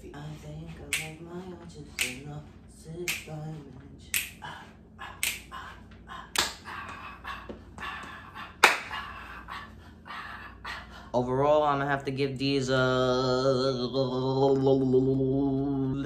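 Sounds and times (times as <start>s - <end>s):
fingers snapping: 0.9s - 1.2s, 2.0s - 2.3s, 3.1s - 3.4s, 4.1s - 4.4s, 5.2s - 5.6s, 6.3s - 7.0s, 8.0s - 9.0s.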